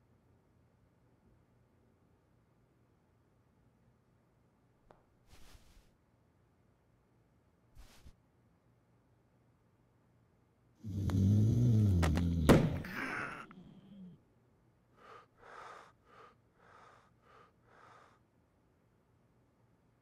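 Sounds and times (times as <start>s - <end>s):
person groaning: 10.8s - 14.2s
sharp knocks: 12.0s - 12.9s
short hard breaths: 15.0s - 18.2s.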